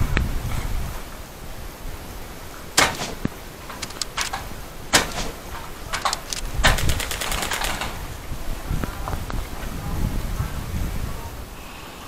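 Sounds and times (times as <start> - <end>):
airsoft gun single shots: 2.8 - 8.0
automatic airsoft gunfire burst: 2.8 - 8.1
light clicks: 3.2 - 7.9.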